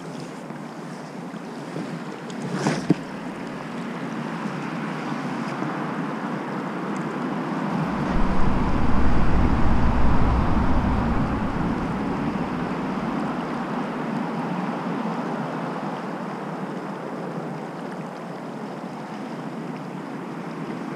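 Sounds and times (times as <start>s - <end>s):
wind buffeting microphone: 7.8s - 14.4s
river water rushing: 7.8s - 14.7s.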